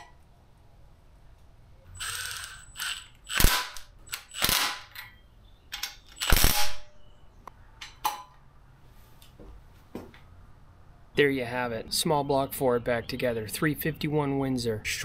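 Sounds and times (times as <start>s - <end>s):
impact driver bursts: 2.0s - 4.9s.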